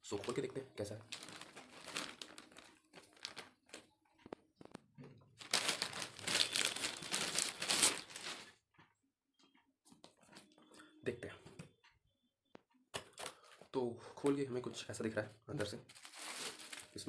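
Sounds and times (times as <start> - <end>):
plastic bag crinkling: 0.1 - 3.9, 5.4 - 8.6, 15.9 - 17.0.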